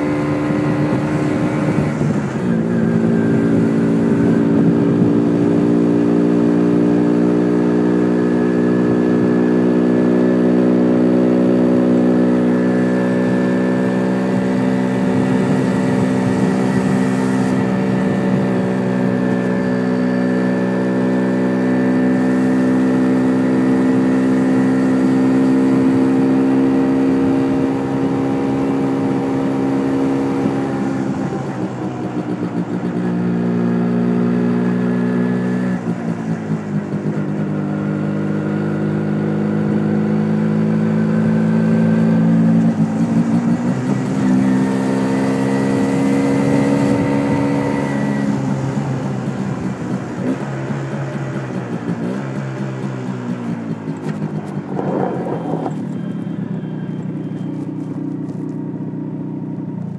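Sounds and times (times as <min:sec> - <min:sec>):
two-stroke motorcycle engine running: 0:00.0 - 0:59.9
wind noise on microphone: 0:00.2 - 0:05.7, 0:15.0 - 0:19.4.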